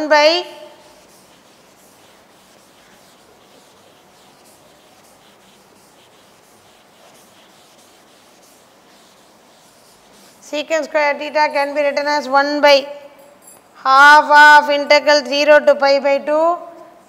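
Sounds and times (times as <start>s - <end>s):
duster wiping blackboard: 0.0s - 12.3s.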